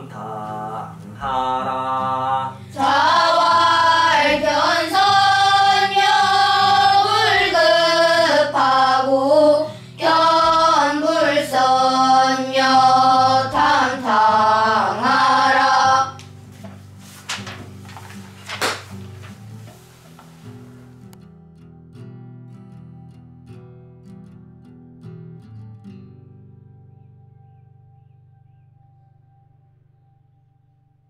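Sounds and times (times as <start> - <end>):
children chanting in unison: 2.7 - 16.2.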